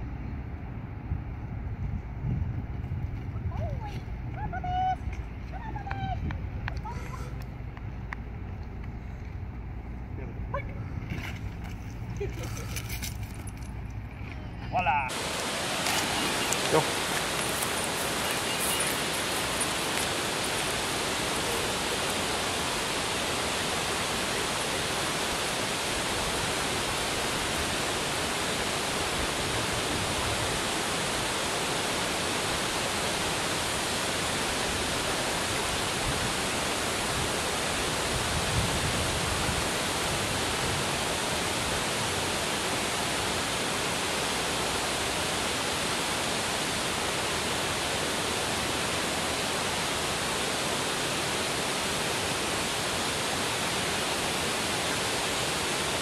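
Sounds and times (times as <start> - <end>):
water pouring over spillway: 15.1 - 56.0.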